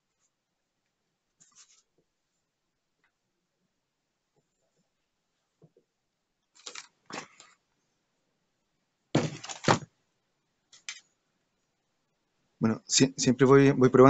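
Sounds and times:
paper pad rustling: 6.6s - 7.5s, 9.2s - 9.9s
drawing pad thumping on table: 9.2s - 9.9s.

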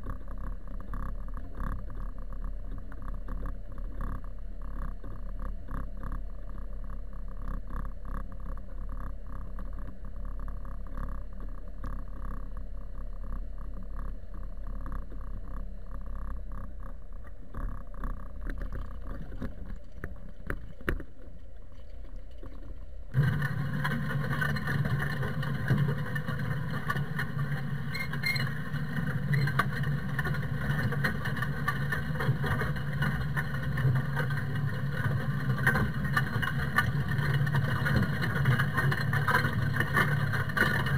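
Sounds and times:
low hum: 0.0s - 40.9s
tractor diesel engine under load: 22.5s - 40.9s.

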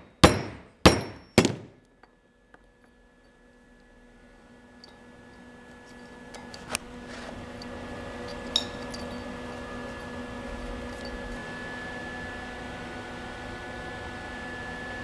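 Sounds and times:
steady shop hum: 0.0s - 15.0s
metallic clinks of steel parts: 4.8s - 6.8s, 7.5s - 11.5s.

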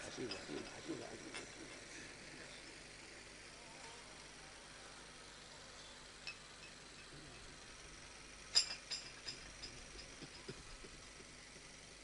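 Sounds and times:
tableware clinking: 8.5s - 10.5s.

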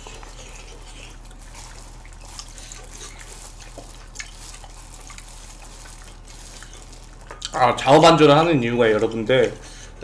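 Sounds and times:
wet chewing mouth sounds: 0.0s - 7.6s
steady low hum: 0.0s - 10.0s.

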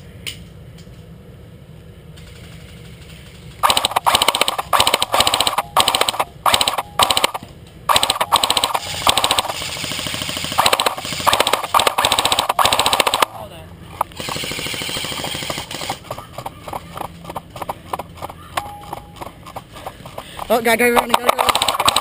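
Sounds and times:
airsoft rifle full-auto bursts: 3.6s - 13.4s, 14.0s - 18.0s, 20.4s - 22.0s.

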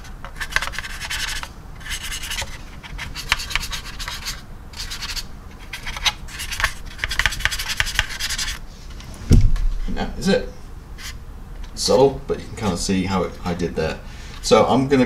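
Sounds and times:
paintbrush scrubbing plastic: 0.0s - 8.6s.

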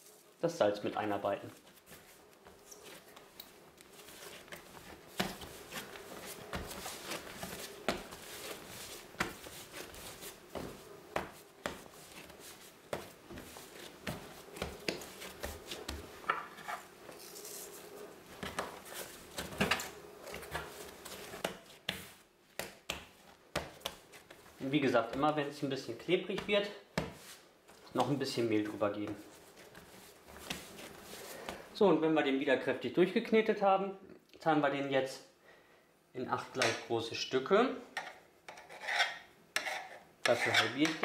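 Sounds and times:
dough rubbing and squishing: 0.0s - 31.7s.

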